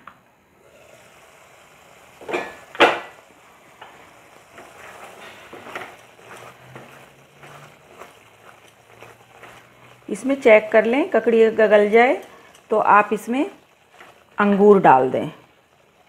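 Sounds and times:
gravy simmering: 0:00.6 - 0:16.0
spatula scraping thick gravy: 0:03.9 - 0:14.7.

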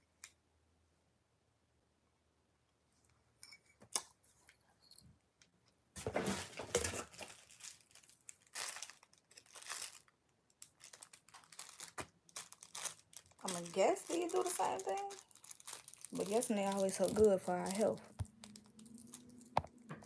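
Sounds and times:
plastic packaging crumpled and torn: 0:06.2 - 0:19.9.

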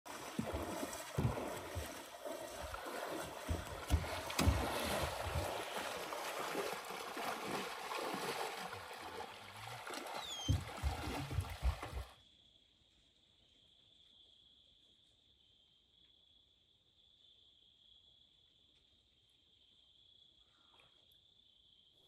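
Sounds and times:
wading through shallow water: 0:00.0 - 0:12.2.

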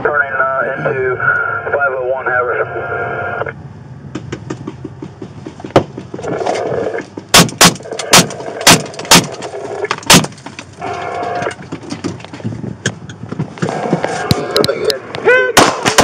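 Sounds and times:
sharp crack: 0:07.3 - 0:10.7, 0:15.6 - 0:16.0
handgun shots: 0:07.4 - 0:09.3.

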